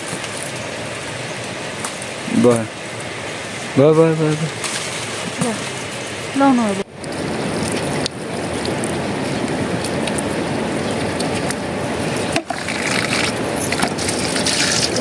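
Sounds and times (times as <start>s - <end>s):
water splashing on stone: 12.3s - 15.0s.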